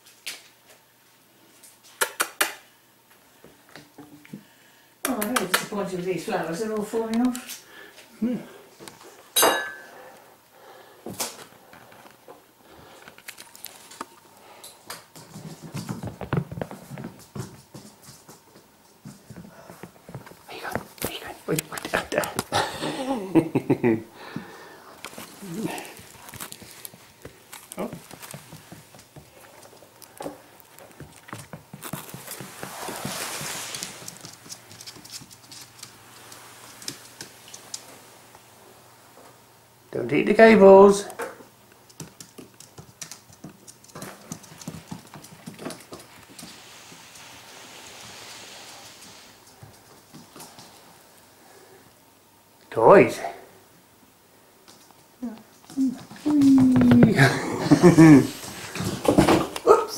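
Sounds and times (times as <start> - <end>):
puppy paws pattering on hard floor: 5.1 - 8.0, 11.1 - 22.6, 24.3 - 38.5, 40.9 - 51.3, 54.6 - 59.9
rustling: 24.9 - 39.3
puppy claws clicking on hard floor: 25.0 - 37.9, 41.2 - 46.6.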